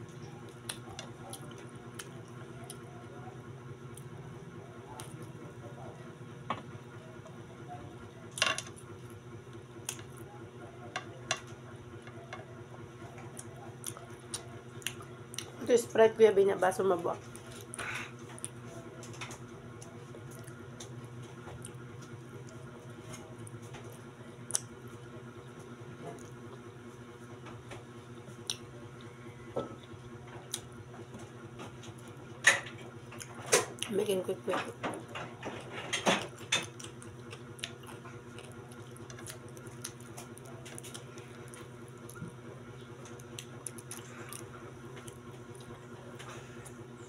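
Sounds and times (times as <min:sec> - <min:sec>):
chewing and mouth sounds: 0:00.0 - 0:03.2, 0:12.0 - 0:15.6, 0:17.2 - 0:26.5, 0:28.1 - 0:32.2, 0:35.6 - 0:46.9
steady low hum: 0:00.0 - 0:47.0.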